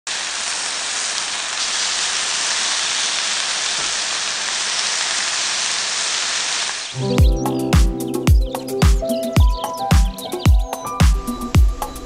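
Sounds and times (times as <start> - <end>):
chicken sizzling on griddle: 0.1 - 7.0.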